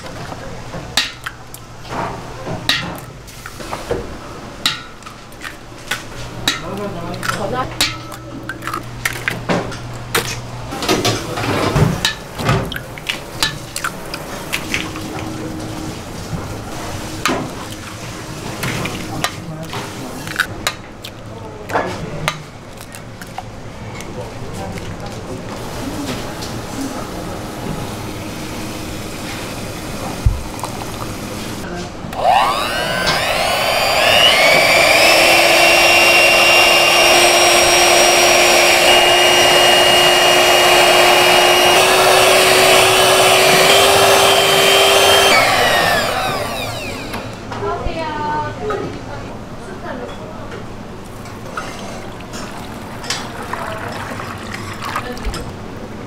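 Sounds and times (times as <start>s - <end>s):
electric hand mixer whining: 32.2s - 47.4s.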